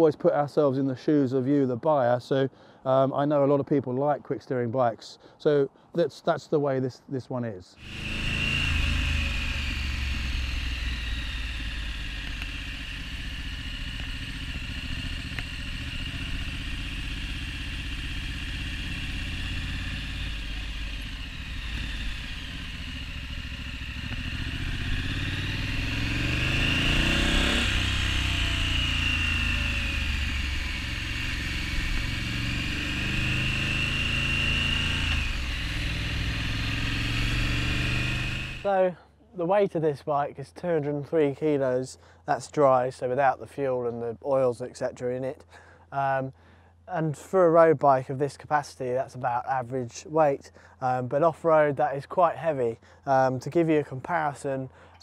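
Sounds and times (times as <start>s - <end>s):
motorcycle engine revving: 7.8s - 38.7s.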